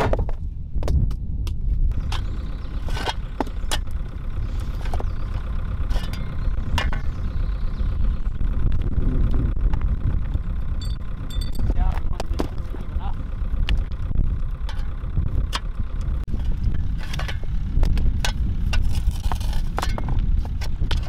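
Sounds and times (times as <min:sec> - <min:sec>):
tractor engine running: 0:00.0 - 0:21.0.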